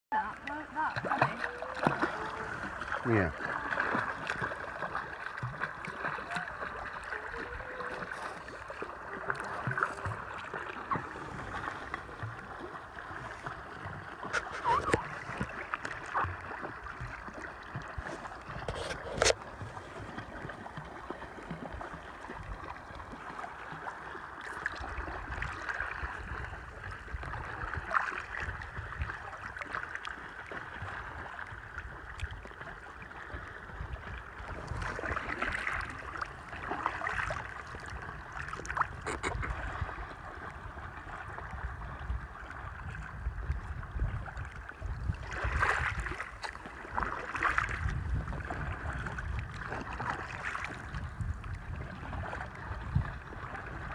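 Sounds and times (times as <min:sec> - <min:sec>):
water dripping and gurgling: 0:00.1 - 0:26.0
paddle splashing in water: 0:00.1 - 0:53.9.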